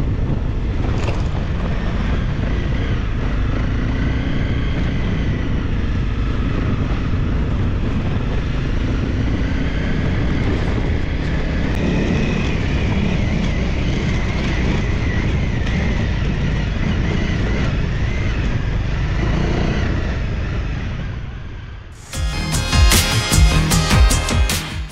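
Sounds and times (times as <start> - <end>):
motorcycle engines running: 0.0 - 24.9
rushing noise: 22.0 - 24.9.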